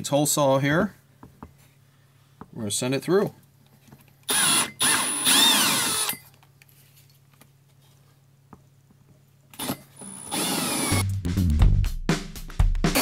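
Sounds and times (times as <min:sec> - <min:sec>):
handheld drill whining: 0:04.3 - 0:06.3, 0:09.6 - 0:11.0.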